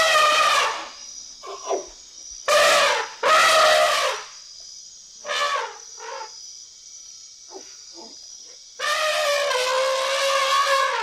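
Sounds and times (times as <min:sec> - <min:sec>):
elephant trumpeting: 0:08.8 - 0:11.0.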